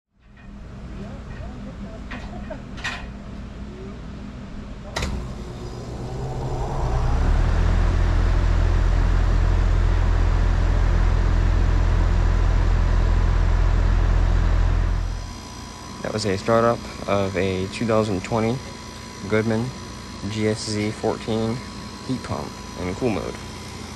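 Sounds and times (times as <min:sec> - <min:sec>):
fan air rushing: 0:04.2 - 0:13.0
heat pump compressor humming: 0:04.8 - 0:23.9.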